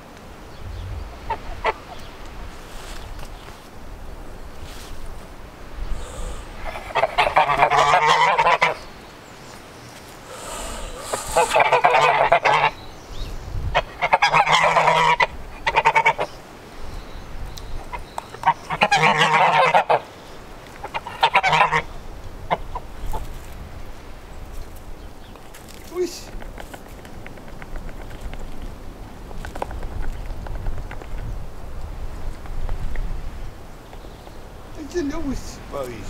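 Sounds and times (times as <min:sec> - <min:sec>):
geese honking: 0:01.1 - 0:02.1, 0:06.0 - 0:08.9, 0:10.3 - 0:12.8, 0:13.8 - 0:16.4, 0:17.9 - 0:20.1, 0:20.8 - 0:23.2.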